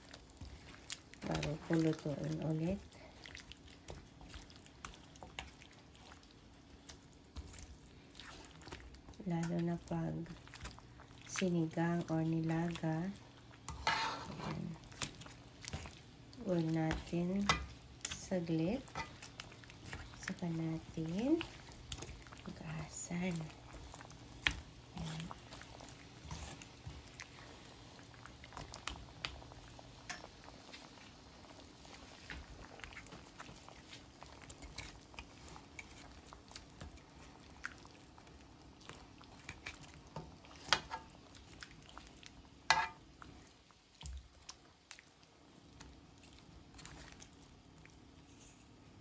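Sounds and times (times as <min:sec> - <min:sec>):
spatula scraping frying pan: 0:13.6 - 0:14.9, 0:18.6 - 0:19.8, 0:42.7 - 0:43.0.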